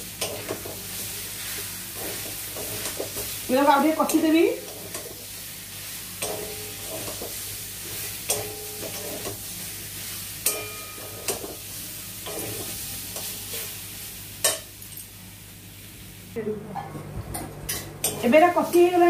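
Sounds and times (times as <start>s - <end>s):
chicken sizzling in a metal pan: 0.0s - 16.5s, 17.7s - 19.0s
spatula clanking against pan: 6.2s - 7.4s, 8.2s - 9.4s, 10.4s - 11.6s.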